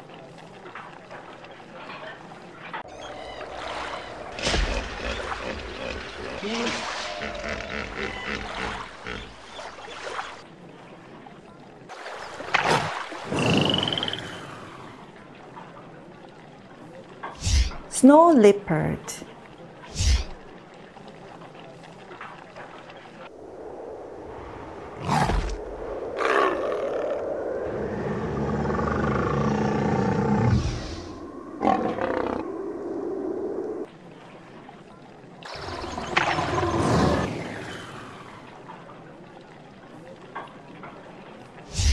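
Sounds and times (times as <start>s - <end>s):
water splashing and sloshing: 0.0s - 41.9s
loud sudden splash: 6.4s - 7.3s
big cat roar: 27.8s - 32.6s.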